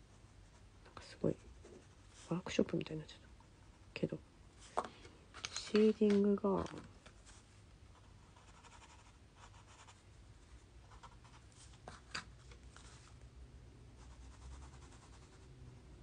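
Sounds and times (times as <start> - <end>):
pencil scratching on paper: 7.9 - 10.0, 10.8 - 11.6, 14.0 - 15.5.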